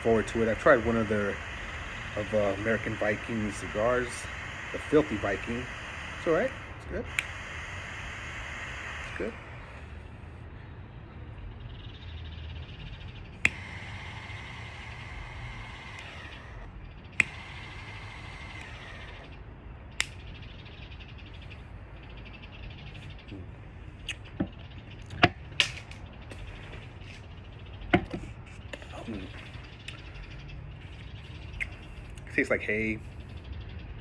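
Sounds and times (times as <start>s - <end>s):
jet flame hissing with whistle: 0.0s - 10.4s, 13.3s - 20.2s
torch lighter clicking on: 0.2s - 9.3s, 13.4s - 19.4s, 20.0s - 20.2s.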